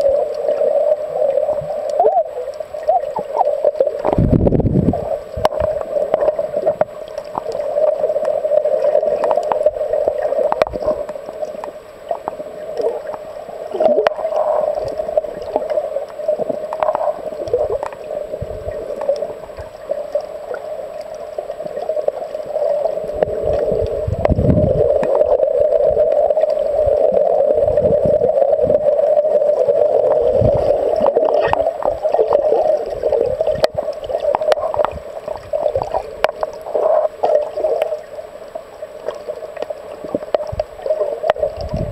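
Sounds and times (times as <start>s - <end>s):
underwater rush of water: 0.0s - 41.9s
water gurgles and whooshes: 0.0s - 41.9s.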